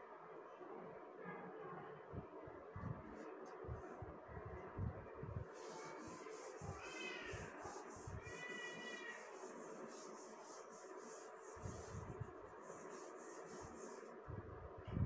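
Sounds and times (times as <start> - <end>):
chalkboard duster wiping: 5.4 - 14.2
high-pitched wavering cry: 6.4 - 9.5.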